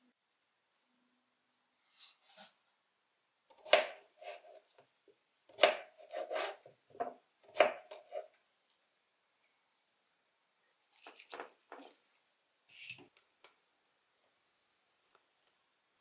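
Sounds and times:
knife chopping on plastic board: 5.5s - 8.3s.

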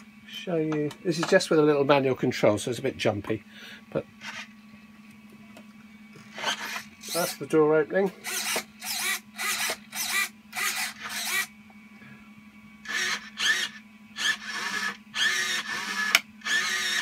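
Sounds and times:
steady low hum: 0.0s - 17.0s
servo motors whirring: 4.2s - 4.5s, 6.2s - 7.4s, 8.2s - 11.5s, 12.8s - 17.0s.

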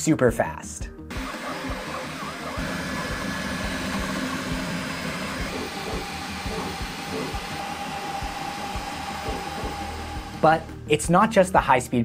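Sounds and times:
printer mechanical hum and knocking: 1.1s - 10.5s
motor whine: 1.1s - 10.8s.

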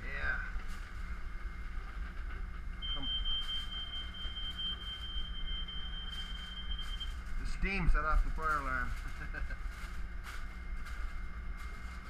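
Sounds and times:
fire alarm high-pitched tone: 2.8s - 7.7s.

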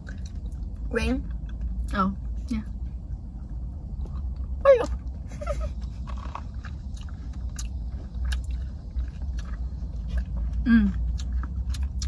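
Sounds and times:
low hum: 0.0s - 12.0s
crunching candy while chewing: 5.8s - 12.0s.

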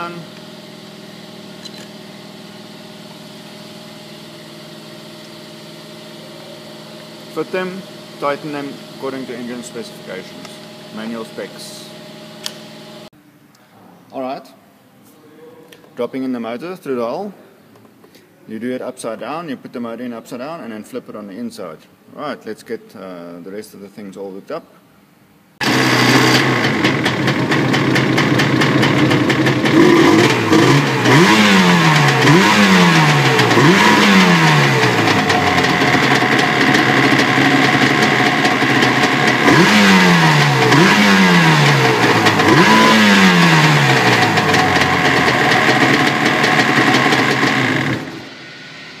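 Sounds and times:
jet ski engine revving: 0.0s - 13.1s, 25.6s - 48.3s.

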